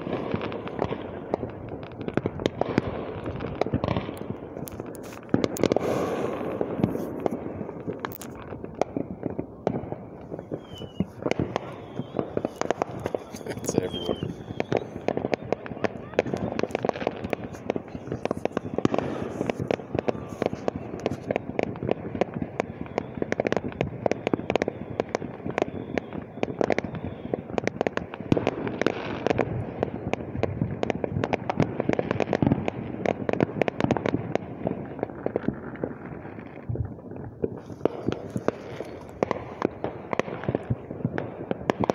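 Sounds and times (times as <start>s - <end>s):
fireworks bangs and crackles: 0.0s - 41.9s.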